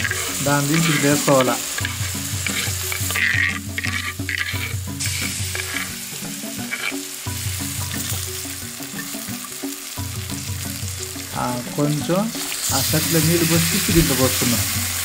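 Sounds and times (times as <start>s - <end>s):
spoon stirring: 0.0s - 9.8s
background music: 0.0s - 15.0s
hot oil sizzling in a pan: 0.0s - 15.0s.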